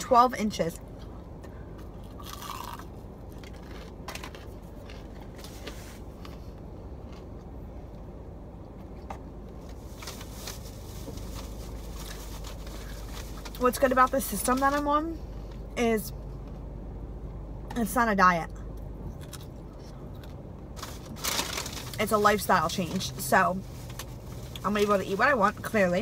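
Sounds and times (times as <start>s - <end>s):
low hum inside a car: 0.0s - 26.0s
person chewing crunchy food: 1.7s - 8.0s, 19.1s - 20.5s.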